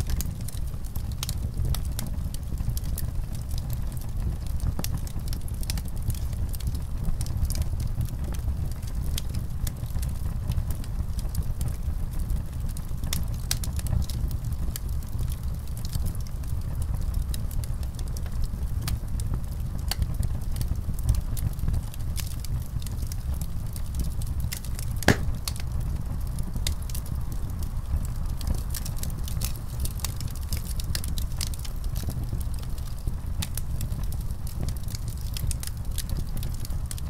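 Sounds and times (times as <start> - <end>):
fire crackling: 0.0 - 37.0
loud fire pop: 25.0 - 25.6.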